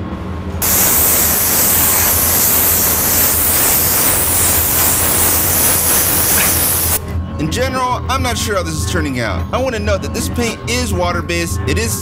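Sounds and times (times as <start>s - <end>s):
airbrush spraying hiss: 0.6s - 7.0s.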